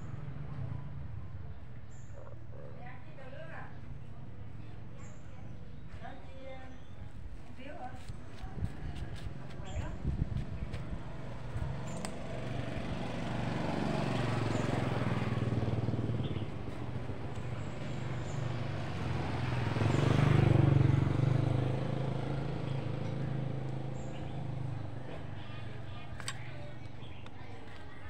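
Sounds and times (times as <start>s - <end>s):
engine humming: 8.6s - 28.0s.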